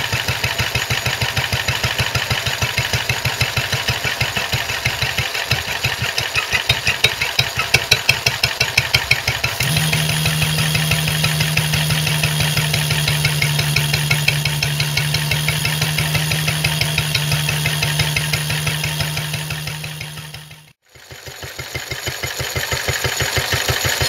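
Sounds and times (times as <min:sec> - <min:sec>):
stationary engine firing beats: 0:00.2 - 0:24.0
steady pitched hum: 0:09.6 - 0:20.8.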